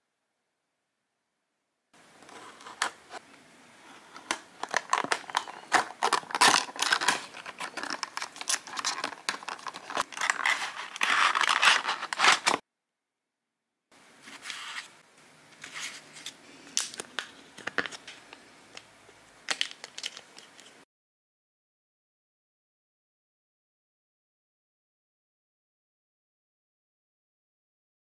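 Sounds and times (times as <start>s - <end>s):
plastic tray crinkling: 4.1s - 12.6s, 19.5s - 20.7s
cardboard crackling and tearing: 4.6s - 12.6s.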